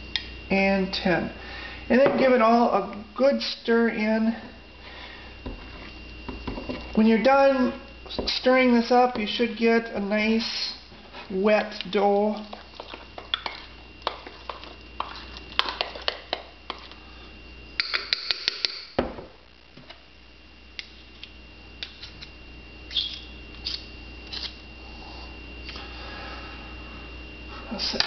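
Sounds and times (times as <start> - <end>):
spoon stirring batter in a mug: 11.5 - 17.0.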